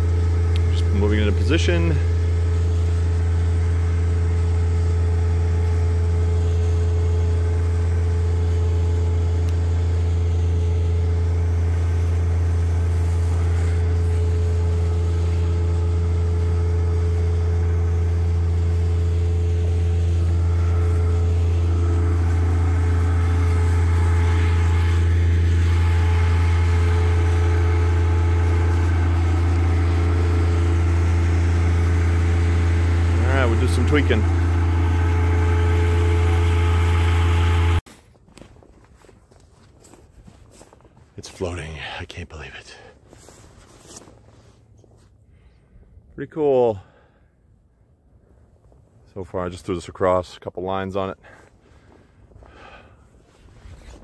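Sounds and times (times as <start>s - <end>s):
tractor engine idling: 0.0s - 37.9s.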